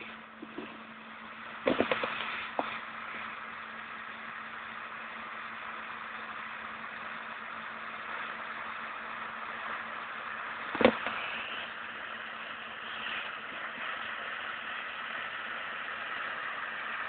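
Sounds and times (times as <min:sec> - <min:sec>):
distant tractor engine hum: 0:00.0 - 0:17.0.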